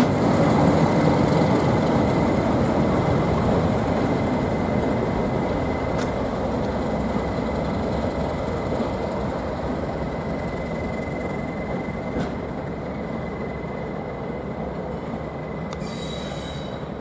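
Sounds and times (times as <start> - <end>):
diesel locomotive rumble: 0.0 - 17.0
faint high whistle: 15.2 - 17.0.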